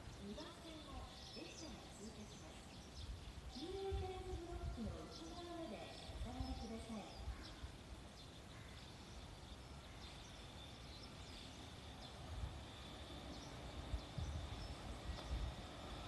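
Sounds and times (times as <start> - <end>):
faint bird chirps: 0.0 - 15.6
steady high-pitched whine: 0.0 - 16.0.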